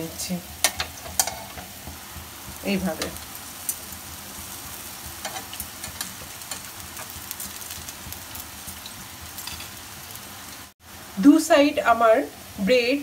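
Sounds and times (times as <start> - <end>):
bread sizzling on grill pan: 0.0 - 13.0.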